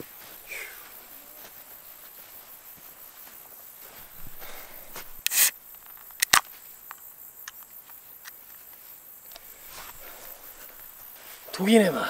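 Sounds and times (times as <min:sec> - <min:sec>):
sharp clicks: 0:05.2 - 0:08.4.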